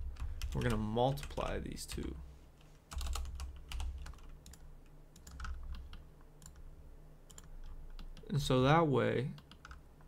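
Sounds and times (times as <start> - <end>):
faint low hum: 0.0 - 10.0
computer keyboard typing: 0.1 - 2.1, 2.9 - 6.6, 7.3 - 8.3, 9.4 - 9.8.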